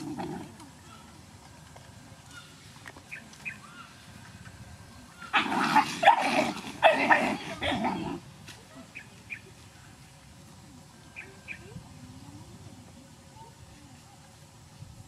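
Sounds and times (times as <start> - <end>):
dogs snarling and growling: 0.0 - 0.7, 5.3 - 8.2.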